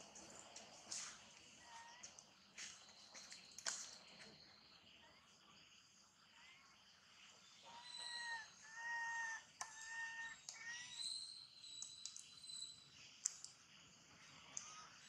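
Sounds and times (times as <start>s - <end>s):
faint clicks: 11.8s - 12.4s, 13.2s - 13.6s, 14.5s - 14.8s.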